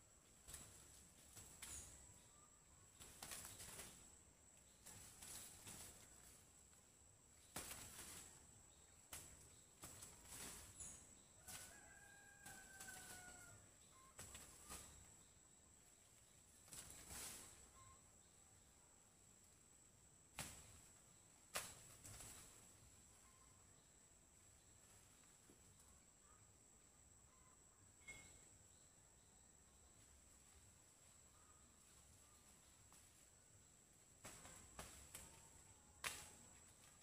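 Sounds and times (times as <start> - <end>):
distant rooster crowing: 11.4 - 13.8.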